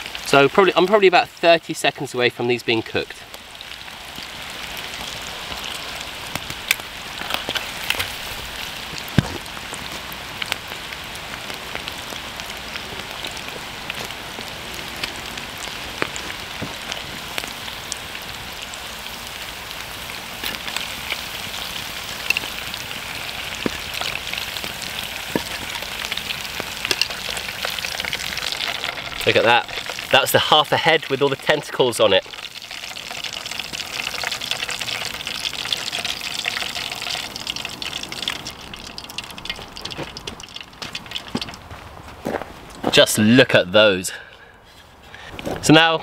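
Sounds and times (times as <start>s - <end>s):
food deep-frying in hot oil: 0.0s - 41.8s.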